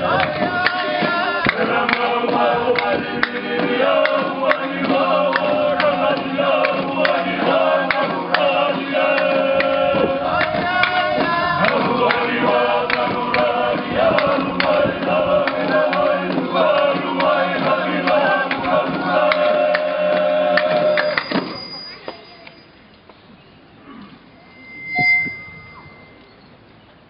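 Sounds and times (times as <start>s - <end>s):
men chanting together: 0.0s - 21.0s.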